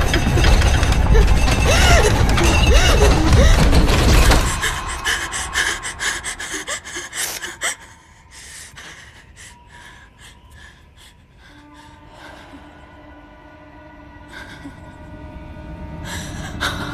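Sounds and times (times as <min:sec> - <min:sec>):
person gasping and panting: 0:01.6 - 0:11.5.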